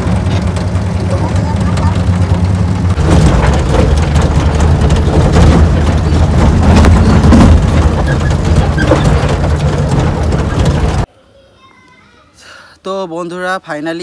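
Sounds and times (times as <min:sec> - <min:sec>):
truck engine running: 0:00.0 - 0:11.1.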